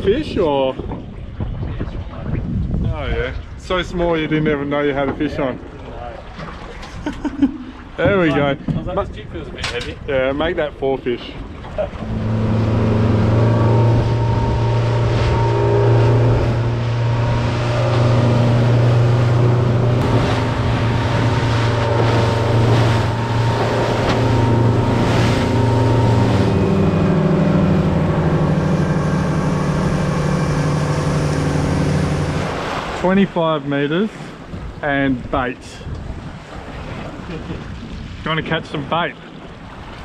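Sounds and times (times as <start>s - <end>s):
waves splashing against hull: 0.0s - 40.0s
motorboat engine drone: 11.4s - 34.8s
rushing water and spray: 11.4s - 35.2s.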